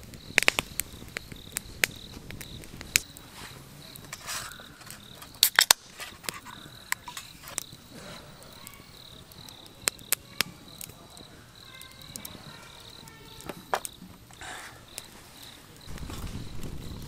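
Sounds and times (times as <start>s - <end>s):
beer can opening with hiss: 0.0s - 9.0s
campfire crackling: 0.0s - 17.0s
crickets chirping: 0.0s - 17.0s.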